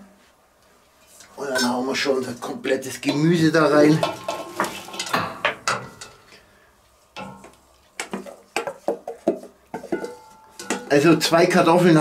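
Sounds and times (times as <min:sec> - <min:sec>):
utensil clacking on metal: 0:03.8 - 0:06.3, 0:07.2 - 0:08.8, 0:09.8 - 0:11.1.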